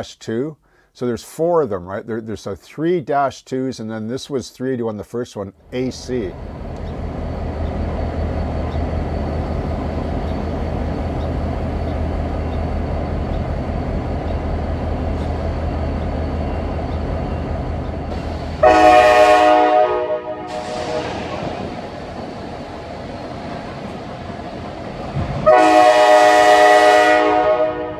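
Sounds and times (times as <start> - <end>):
diesel locomotive engine rumble: 5.5 - 27.9
locomotive air horn: 18.6 - 21.6, 25.4 - 27.9.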